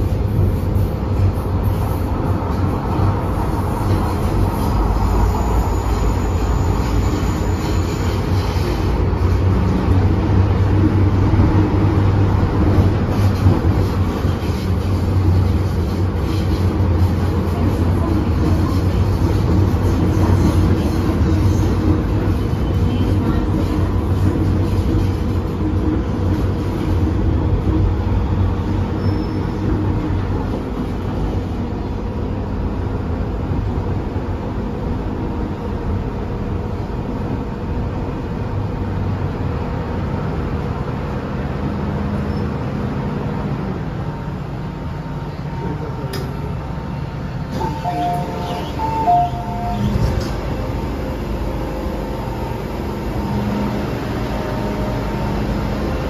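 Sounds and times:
train rail and motor noise: 0.0 - 56.0
two-tone door chime beeps: 47.6 - 49.9.

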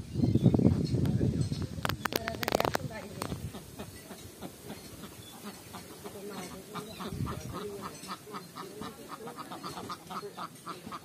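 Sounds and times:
ducks quacking: 2.5 - 11.0.

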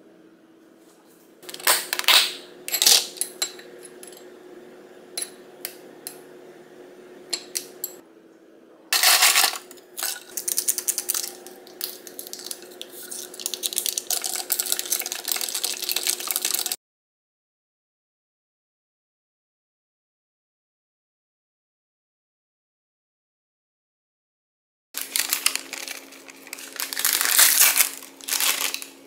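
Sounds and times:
ice crackling under poured drink: 9.0 - 16.8, 25.0 - 29.0
ice cubes rattling in glass: 9.0 - 16.8, 25.0 - 28.9.

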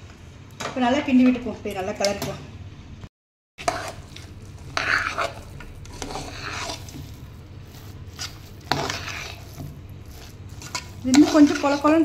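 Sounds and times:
metal spoon scraping pot: 3.6 - 12.0.

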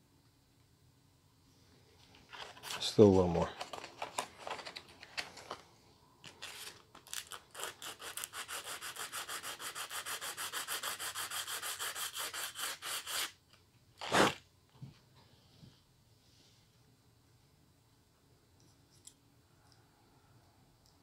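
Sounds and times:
sanding by hand on sandpaper: 7.5 - 13.4.

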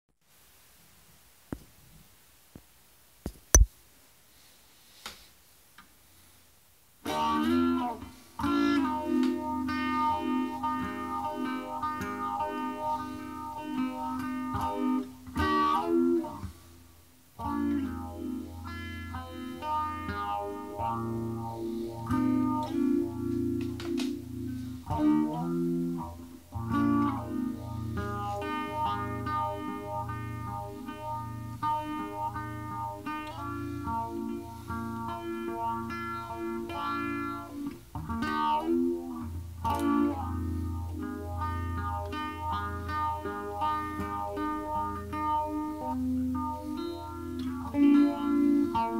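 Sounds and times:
electric guitar chords: 7.0 - 16.8, 17.4 - 48.9.

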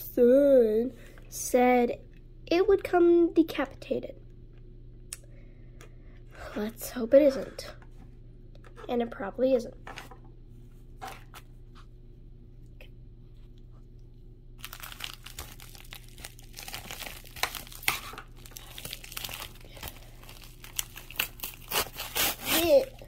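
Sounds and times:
plastic mailer crinkling: 14.6 - 23.0
plastic tearing: 14.6 - 23.0.

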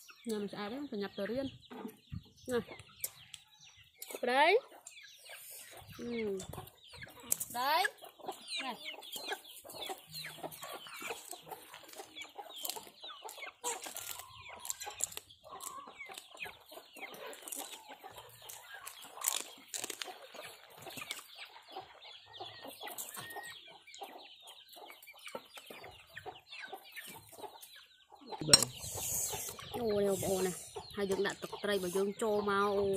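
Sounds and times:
chickens clucking: 0.0 - 32.9.

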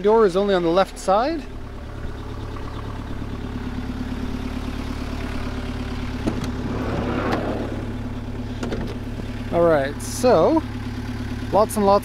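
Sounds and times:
diesel engine idling: 0.0 - 12.0
sliding door rolling open: 6.3 - 7.9.

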